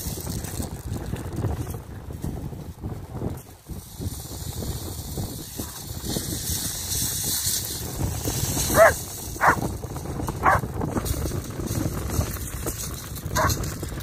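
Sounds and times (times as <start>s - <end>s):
dog barking: 8.7s - 9.6s, 10.4s - 10.6s.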